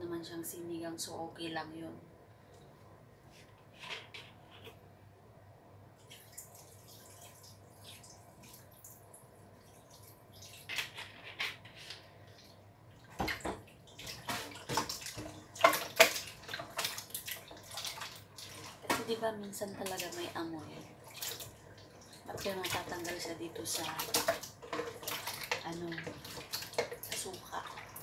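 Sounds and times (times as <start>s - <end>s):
splashing and sloshing liquid: 6.0s - 11.2s, 12.0s - 28.0s.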